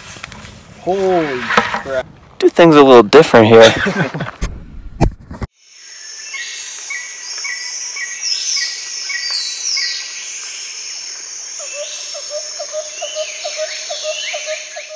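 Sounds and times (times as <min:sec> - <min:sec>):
background hiss: 0:05.6 - 0:14.9
birds chirping and whistling: 0:06.0 - 0:10.8, 0:11.6 - 0:14.9.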